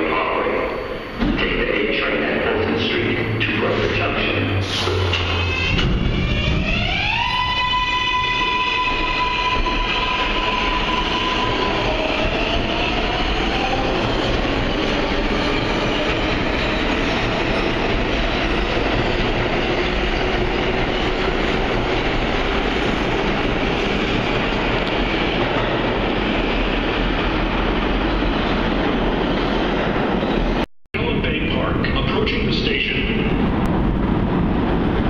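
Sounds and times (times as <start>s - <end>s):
subway train rumbling past: 0.0s - 35.0s.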